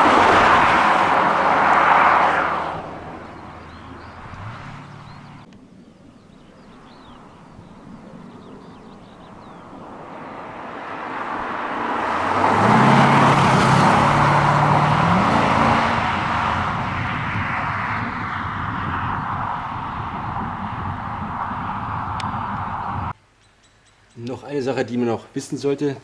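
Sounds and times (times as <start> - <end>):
car engine accelerating: 0.0 - 5.5, 8.4 - 23.1.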